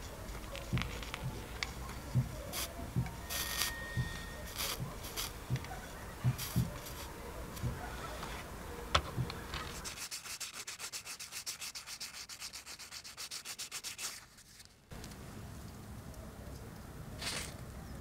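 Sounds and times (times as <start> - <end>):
sandpaper rubbing on metal: 2.4 - 5.4, 9.6 - 14.6.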